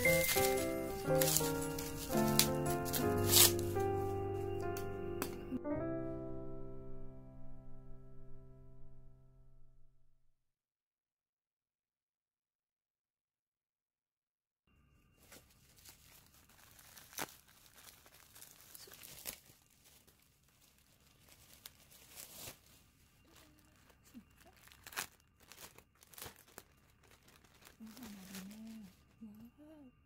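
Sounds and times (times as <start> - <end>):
packaging crinkling and tearing: 0.0 - 4.2, 15.2 - 29.1.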